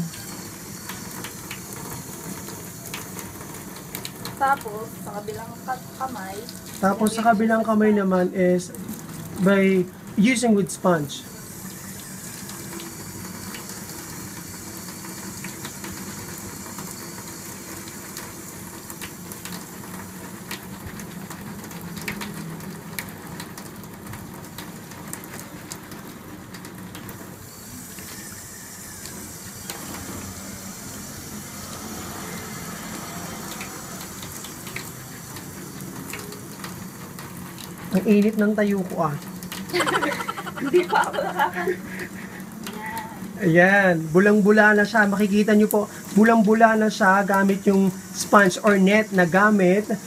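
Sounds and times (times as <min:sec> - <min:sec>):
tap water running into sink: 0:00.0 - 0:07.7, 0:08.7 - 0:50.0
small splashes and clicks: 0:18.9 - 0:27.2, 0:33.4 - 0:40.3.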